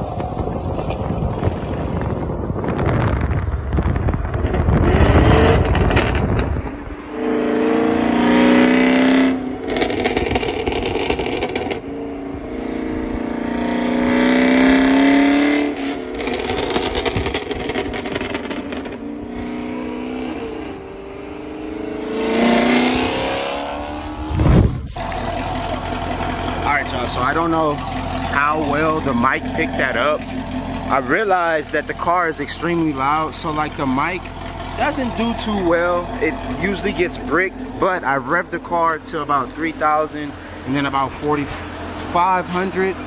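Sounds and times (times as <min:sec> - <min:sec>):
wind buffeting microphone: 0:00.0 - 0:07.1, 0:24.0 - 0:26.4
car engine revving: 0:00.0 - 0:43.0.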